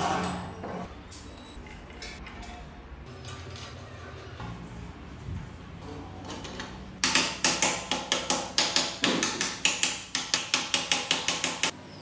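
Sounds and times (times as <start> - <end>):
hammer striking metal: 7.0 - 11.8.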